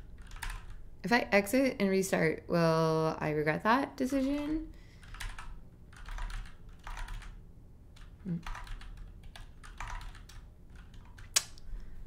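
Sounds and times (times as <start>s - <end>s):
typing on a computer keyboard: 0.0s - 0.8s, 4.2s - 11.4s.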